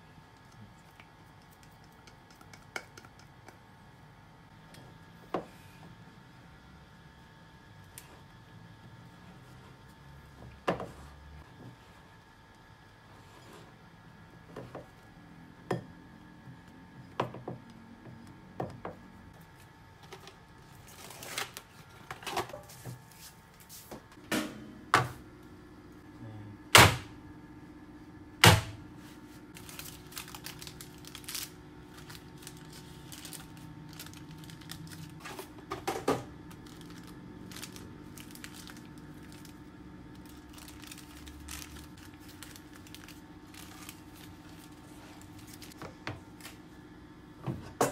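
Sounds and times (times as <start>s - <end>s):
low steady hum: 0.0s - 47.9s
parchment paper rustling: 29.0s - 35.6s, 36.5s - 46.6s.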